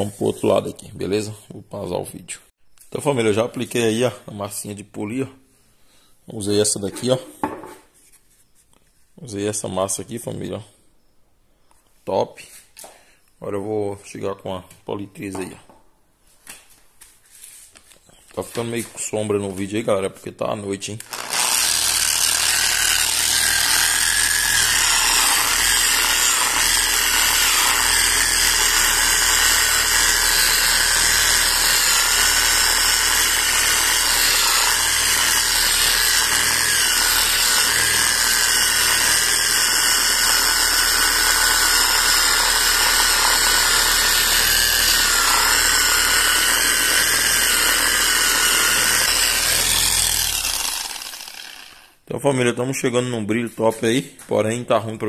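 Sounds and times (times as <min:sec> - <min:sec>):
electric polisher whining: 0:21.0 - 0:51.9.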